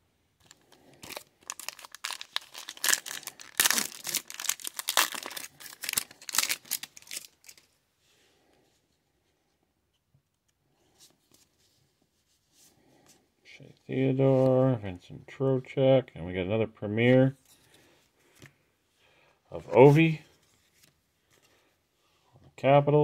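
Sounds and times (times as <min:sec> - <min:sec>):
cards rustling: 0:00.4 - 0:07.7
foil wrapper crinkling: 0:00.4 - 0:07.7.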